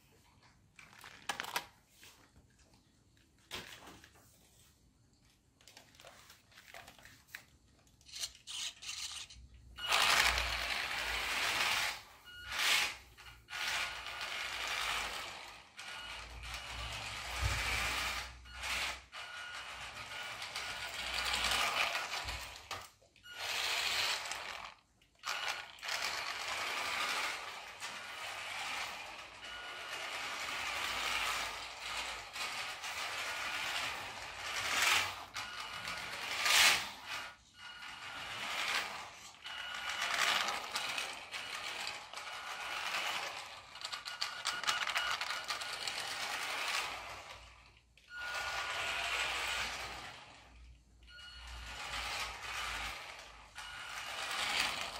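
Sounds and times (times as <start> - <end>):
plastic wheels rolling on floor: 0.2 - 54.9
small electric motor whirring: 8.1 - 50.6.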